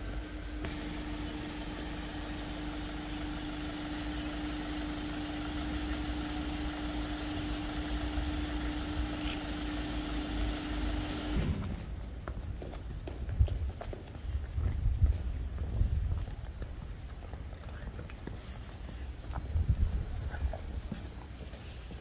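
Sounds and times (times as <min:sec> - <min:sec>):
truck engine idling: 0:00.0 - 0:11.9.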